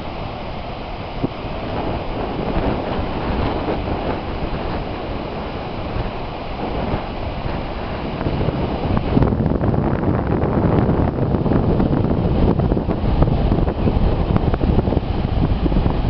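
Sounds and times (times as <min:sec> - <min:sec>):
small waves breaking: 0:00.0 - 0:09.3
wind on microphone: 0:00.0 - 0:16.0.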